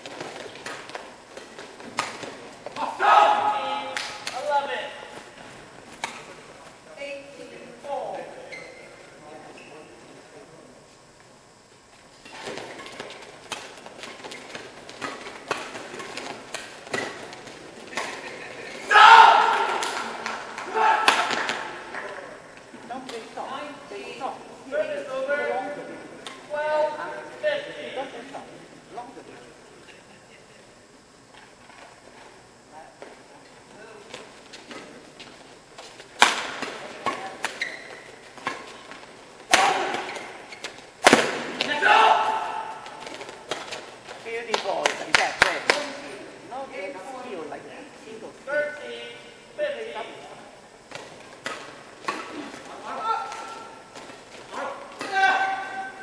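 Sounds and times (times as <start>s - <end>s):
rackets hitting shuttlecock: 0.1s - 2.9s, 12.3s - 18.5s, 19.3s - 22.2s, 36.2s - 37.6s, 38.4s - 43.9s
short squeak: 8.5s - 8.9s
rackets smacking shuttlecock: 36.2s - 41.7s.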